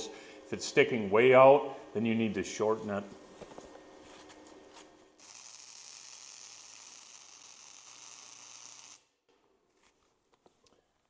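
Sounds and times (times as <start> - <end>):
welding arc sizzling: 5.2 - 9.1.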